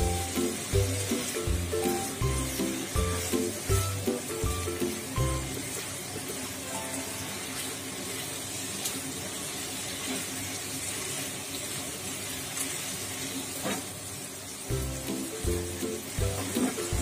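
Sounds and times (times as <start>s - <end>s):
sauce sizzling in a wok: 0.0s - 17.0s
spatula stirring: 0.3s - 4.2s.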